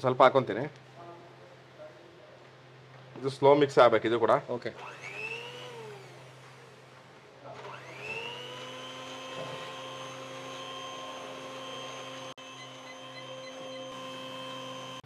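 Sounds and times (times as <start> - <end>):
electric mixer motor whining: 4.8 - 6.8, 7.6 - 15.0.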